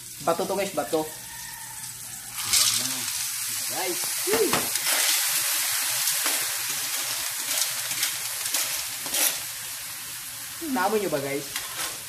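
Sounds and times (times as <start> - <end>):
snails sizzling in hot oil: 0.0 - 12.0
ladle scraping shells in a wok: 2.3 - 3.5, 4.7 - 9.8.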